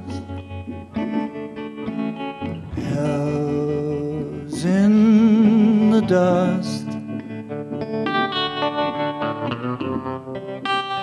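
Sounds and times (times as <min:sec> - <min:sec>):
plucked guitar: 0:00.0 - 0:11.0
man singing: 0:02.6 - 0:07.1.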